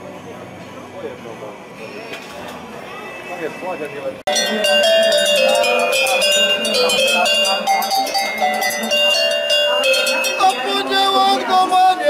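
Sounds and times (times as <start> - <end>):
metal cowbells ringing: 4.3 - 11.5.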